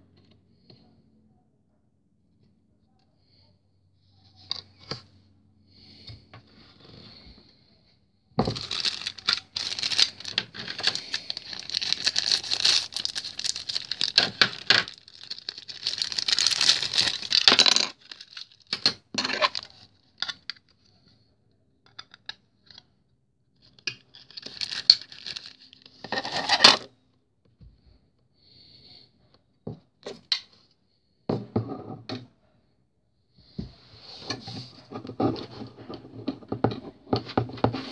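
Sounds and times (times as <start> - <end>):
plastic packaging rustling: 8.4 - 19.8, 24.2 - 26.6.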